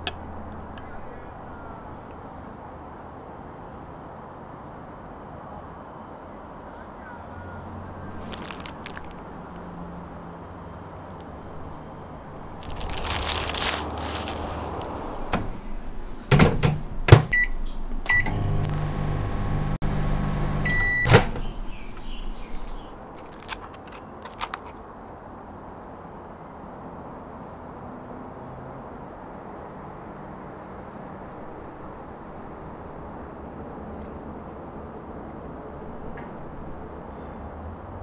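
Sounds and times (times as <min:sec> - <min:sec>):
plastic rustle: 0:08.1 - 0:09.8, 0:12.3 - 0:15.6, 0:22.4 - 0:24.8
microwave humming: 0:14.9 - 0:21.6
microwave beeps: 0:17.3 - 0:19.5, 0:20.6 - 0:21.3.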